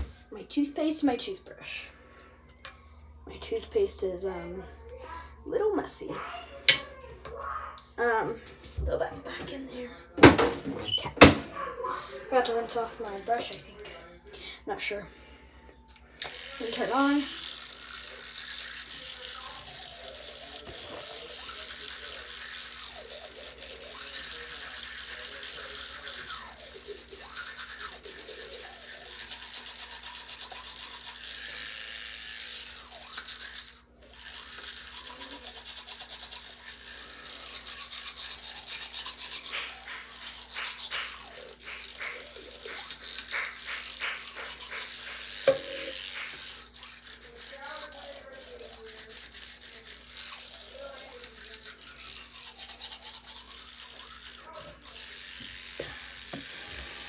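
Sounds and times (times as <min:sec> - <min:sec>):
electric toothbrush humming: 0:10.8 - 0:14.2, 0:14.8 - 0:57.0
wet scrubbing on teeth: 0:16.2 - 0:57.0.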